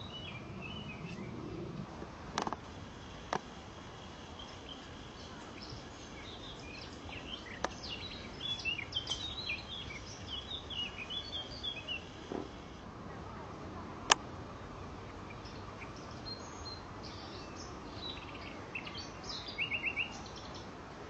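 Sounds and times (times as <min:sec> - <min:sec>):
bird chirping: 0:00.0 - 0:01.8, 0:03.9 - 0:12.2, 0:14.6 - 0:20.7
outdoor background hiss: 0:00.0 - 0:21.0.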